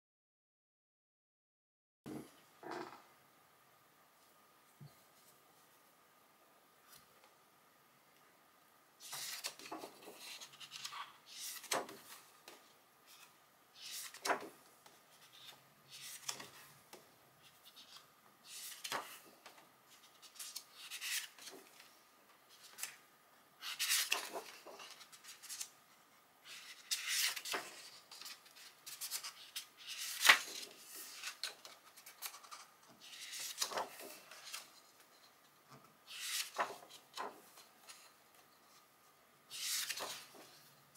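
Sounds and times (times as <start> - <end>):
book pages turning: 9.0 - 16.7, 17.4 - 21.9, 22.5 - 23.0, 23.6 - 25.7, 26.5 - 35.4, 36.1 - 38.1, 39.5 - 40.6.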